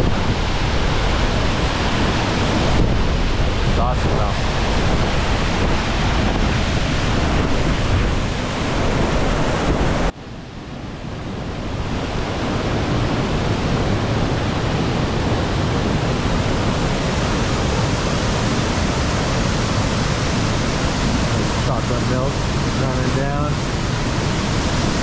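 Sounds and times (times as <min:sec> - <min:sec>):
waterfall rushing: 0:11.7 - 0:25.0.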